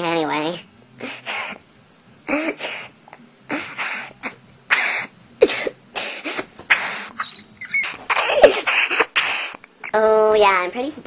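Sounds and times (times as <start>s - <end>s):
boy laughing breathily: 3.5s - 9.9s.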